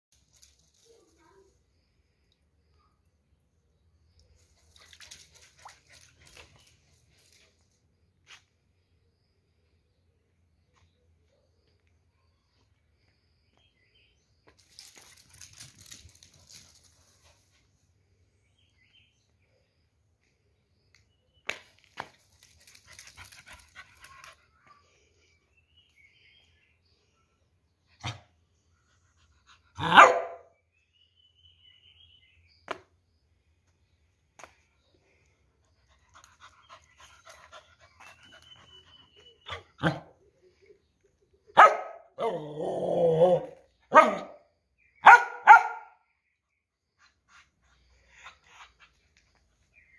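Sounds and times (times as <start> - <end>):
faint high chirps: 0.4 - 17.4, 30.5 - 41.6
dog barking: 28.0 - 28.3, 29.8 - 30.5, 39.5 - 40.1, 41.6 - 42.4, 43.2 - 46.0.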